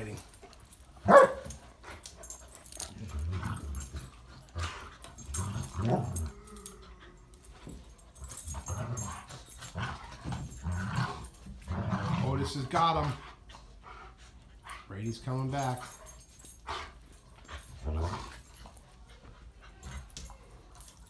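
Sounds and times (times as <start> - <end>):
dogs growling: 1.9 - 14.2, 16.0 - 18.8.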